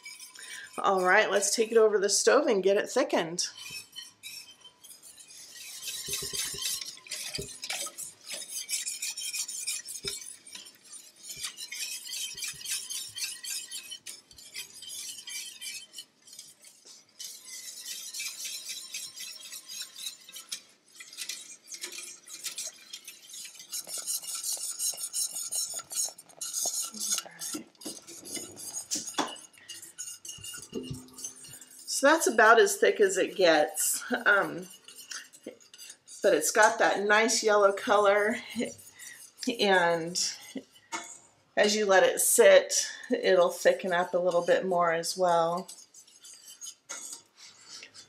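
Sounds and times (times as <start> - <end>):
whisk scraping metal pan: 0.0 - 48.0.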